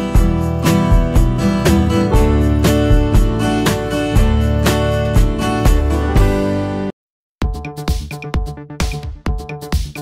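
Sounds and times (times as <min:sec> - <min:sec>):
strummed acoustic guitar music: 0:00.0 - 0:06.9.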